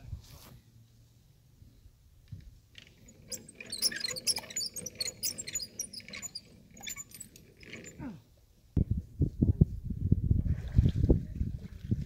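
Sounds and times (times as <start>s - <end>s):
metal hardware clinking and squeaking: 2.8s - 8.1s.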